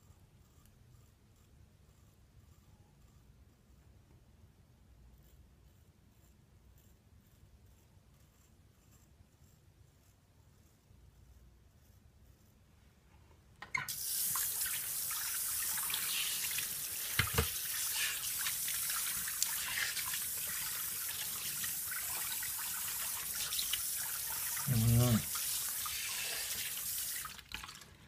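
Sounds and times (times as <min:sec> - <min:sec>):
tap water running into sink: 0:13.6 - 0:28.0.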